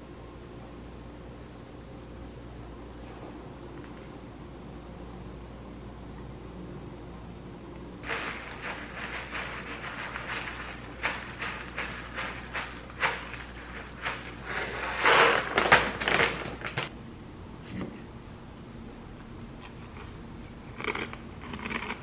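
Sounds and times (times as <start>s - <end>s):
granola pouring: 8.0s - 16.9s
plastic bag rustling: 8.0s - 16.9s.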